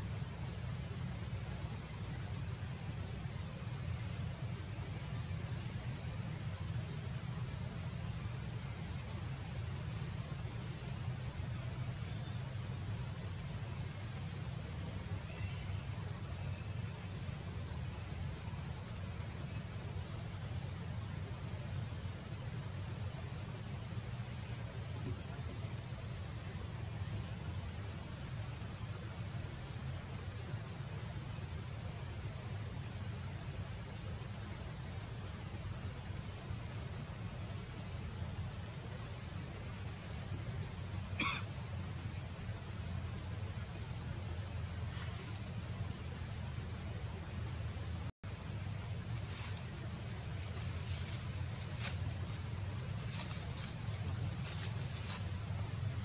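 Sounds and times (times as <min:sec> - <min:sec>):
low outdoor rumble: 0:00.0 - 0:56.0.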